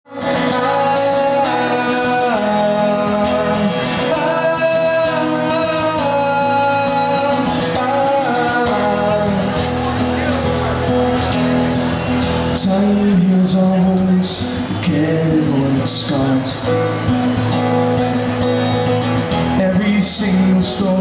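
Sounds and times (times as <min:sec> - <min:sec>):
man singing: 0:00.1 - 0:10.0, 0:12.4 - 0:16.8, 0:19.4 - 0:21.0
acoustic guitar and band: 0:00.1 - 0:21.0.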